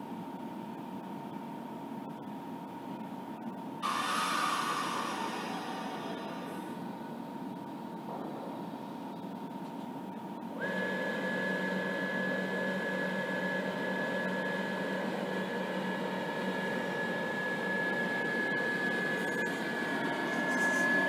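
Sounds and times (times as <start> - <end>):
electric train humming and whining: 3.8 - 7.6, 10.1 - 21.0.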